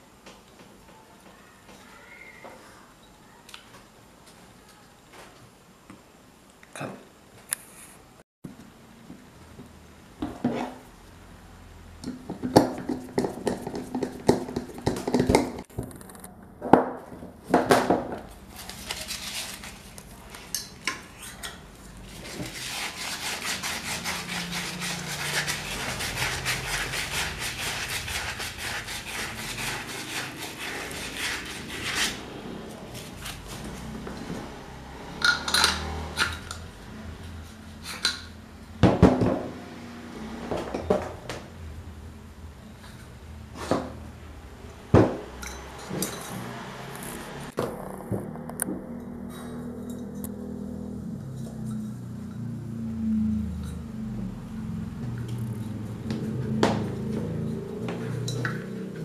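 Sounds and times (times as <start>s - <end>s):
metal scraping on metal: 18.5s - 32.3s
metal fan parts clinking: 35.2s - 36.6s, 57.2s - 59.0s.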